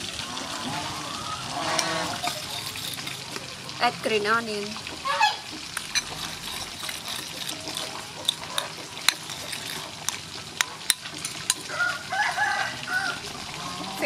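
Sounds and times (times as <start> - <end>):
liquid swishing: 0.0 - 3.9, 5.4 - 11.7
spoon clinking against bowl: 1.8 - 3.4, 5.8 - 11.7.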